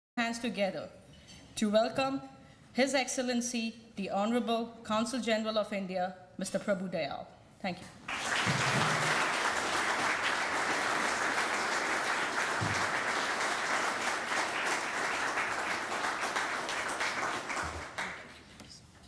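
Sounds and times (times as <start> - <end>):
audience applauding: 8.1 - 18.5.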